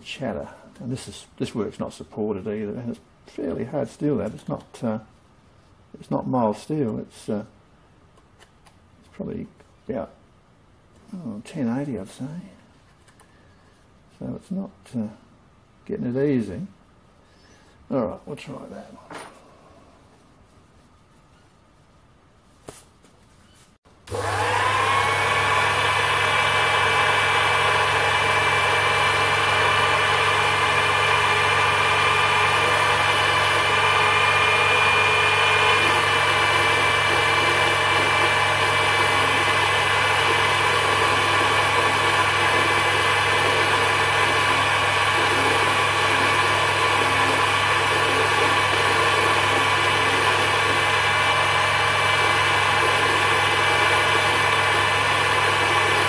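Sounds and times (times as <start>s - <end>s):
lathe motor whining: 24.1s - 56.0s.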